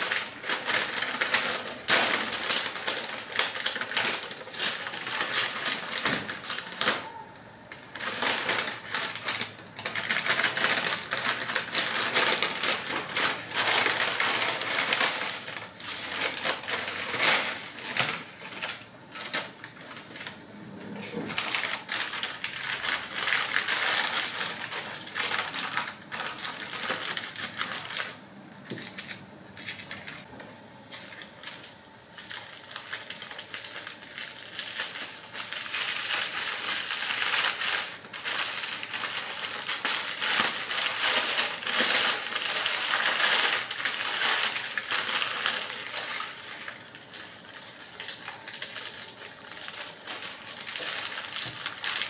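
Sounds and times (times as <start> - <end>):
paper wrapping crinkling: 0.0 - 20.4, 21.3 - 30.3, 30.9 - 52.0.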